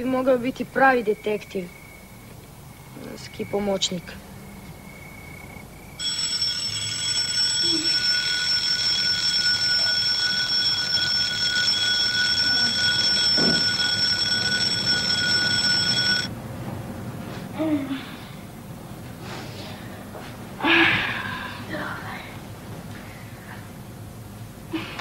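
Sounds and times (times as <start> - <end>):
alarm clock ringing: 6.0 - 16.3.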